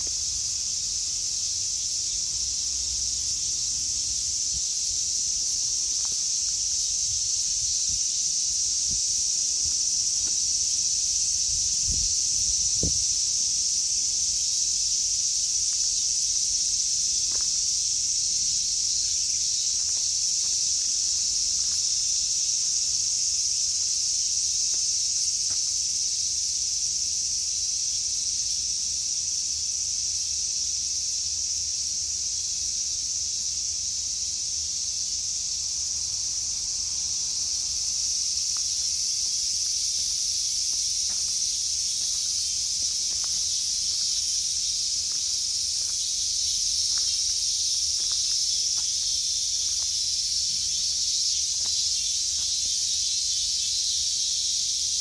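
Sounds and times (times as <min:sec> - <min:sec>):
insects shrilling: 0:36.0 - 0:55.0.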